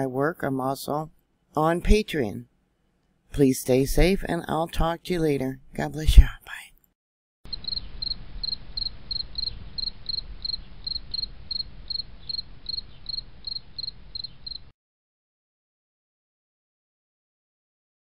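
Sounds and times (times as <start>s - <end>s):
cricket chirping: 7.5s - 14.7s.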